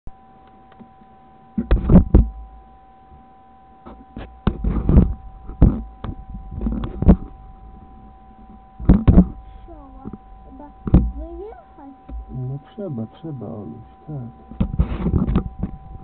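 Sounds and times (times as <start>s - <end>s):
faint steady high tone: 0.1s - 16.0s
knocks and thumps on dashcam: 8.8s - 9.4s, 10.9s - 11.2s.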